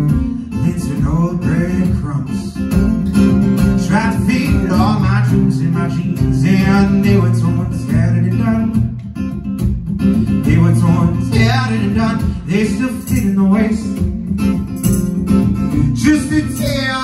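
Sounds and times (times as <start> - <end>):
man singing: 0.0 - 9.0, 10.3 - 14.4, 15.6 - 17.0
acoustic guitar strumming: 0.0 - 17.0.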